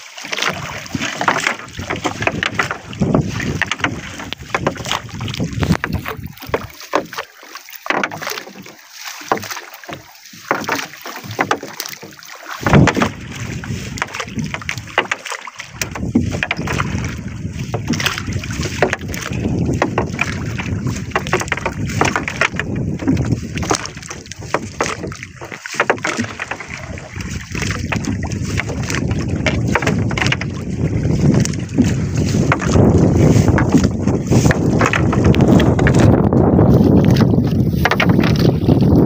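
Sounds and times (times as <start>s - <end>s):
water sloshing against boat: 0.0s - 39.0s
net knocking against hull: 0.2s - 39.0s
wind buffeting microphone: 0.5s - 7.1s, 12.6s - 15.1s, 15.7s - 39.0s.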